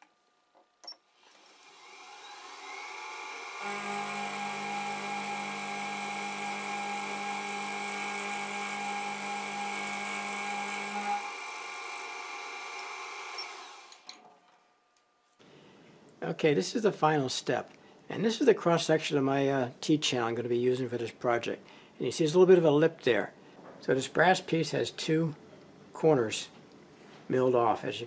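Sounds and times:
milling machine spindle whine: 1.5s - 14.1s.

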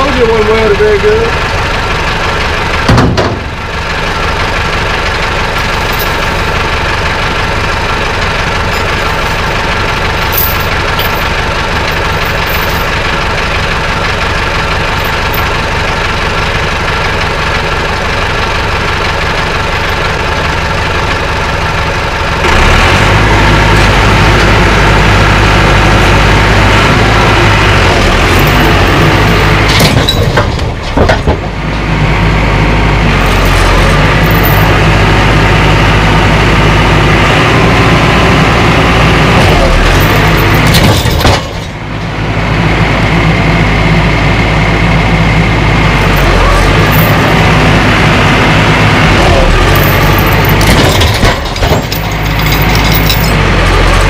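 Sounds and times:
tractor engine running: 0.0s - 54.0s
loud jolt: 28.3s - 31.5s, 49.9s - 53.3s.

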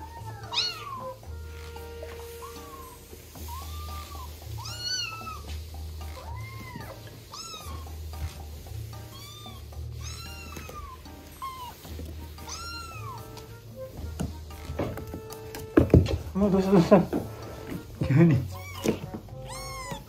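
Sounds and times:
kittens mewing: 0.0s - 8.4s, 9.1s - 13.5s, 18.4s - 20.0s
background music: 0.0s - 20.0s.

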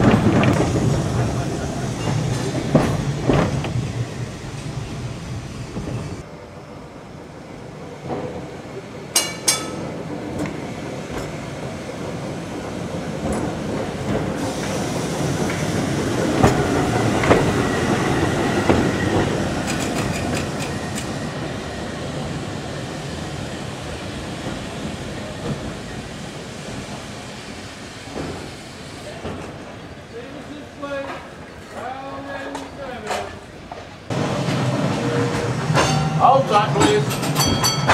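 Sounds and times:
tram rumbling past: 0.0s - 37.9s
wheels clicking on rails: 9.1s - 22.4s.

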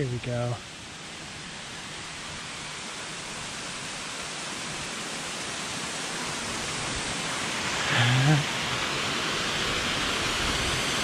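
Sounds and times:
mountain stream rushing: 0.0s - 11.0s.

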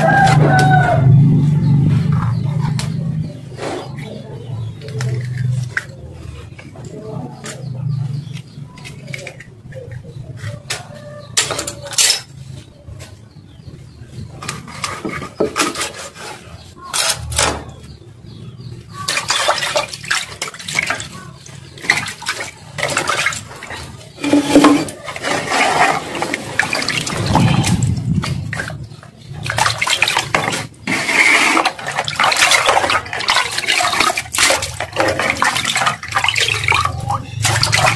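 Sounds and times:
knife scraping and cutting fish: 3.5s - 6.8s, 7.4s - 12.6s, 14.3s - 17.7s
water sloshing in a bucket: 18.4s - 37.9s.

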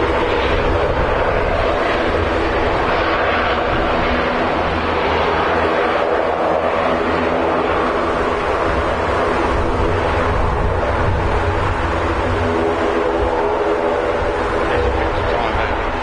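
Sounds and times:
jet engines running: 0.0s - 16.0s
low hum: 0.0s - 16.0s.

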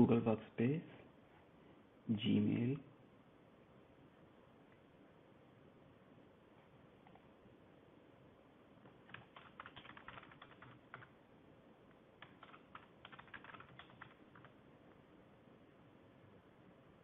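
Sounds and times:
keyboard typing: 8.8s - 11.2s, 12.2s - 14.6s.

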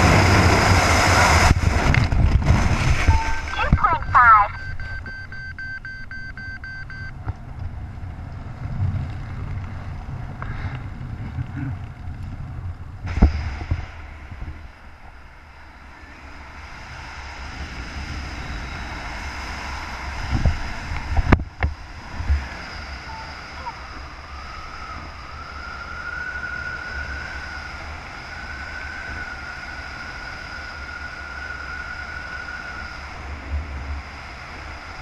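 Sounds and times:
rapid high electronic beeping: 3.1s - 7.1s.

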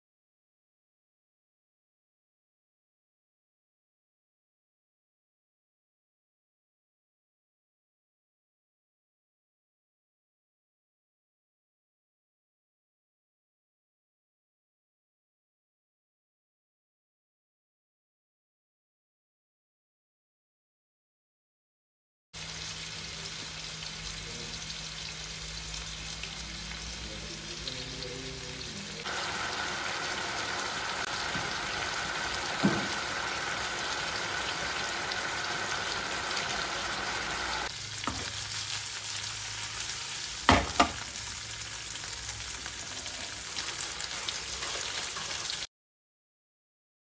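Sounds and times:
chicken sizzling in oil: 22.4s - 45.7s.

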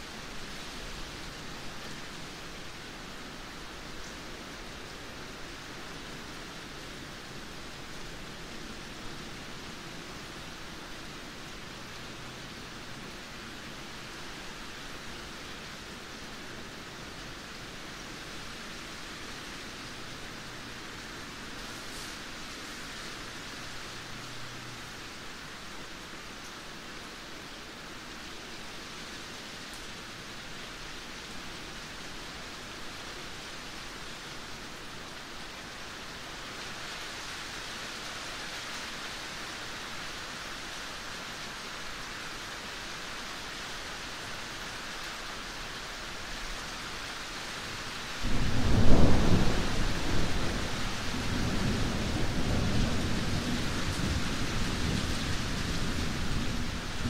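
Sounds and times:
steady rain: 0.0s - 57.0s
thunder clap and rumble: 48.2s - 57.0s.

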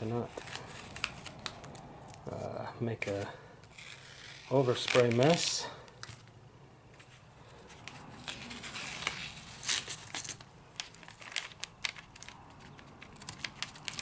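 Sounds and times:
tape peeling and paper crinkling: 0.0s - 2.3s, 3.0s - 14.0s.

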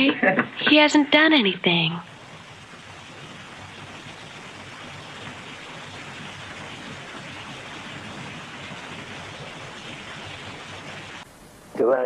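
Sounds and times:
steady hiss-like noise: 0.0s - 12.0s.

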